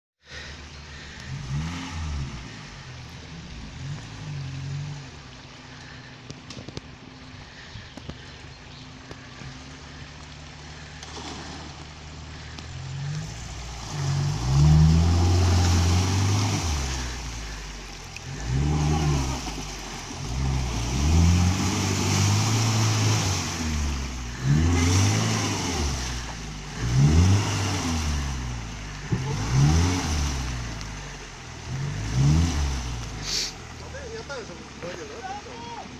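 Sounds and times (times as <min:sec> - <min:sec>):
water and mud splashing: 0:00.3 - 0:35.9
engine revving hard: 0:01.2 - 0:02.8, 0:13.0 - 0:30.8, 0:31.7 - 0:33.5.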